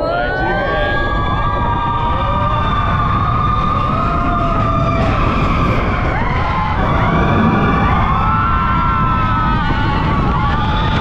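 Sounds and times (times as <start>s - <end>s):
roller coaster train rumble: 0.0s - 11.0s
rushing air: 4.9s - 10.9s.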